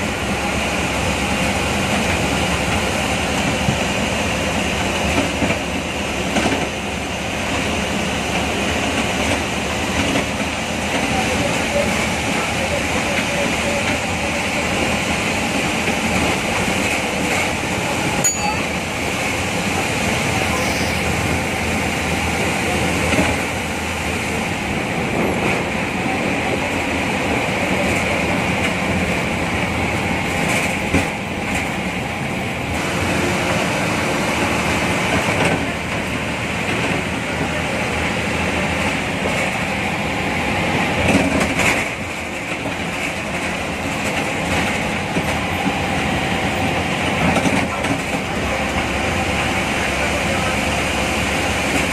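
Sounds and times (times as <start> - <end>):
bus diesel engine running: 0.0 - 51.9
road noise: 0.0 - 51.9.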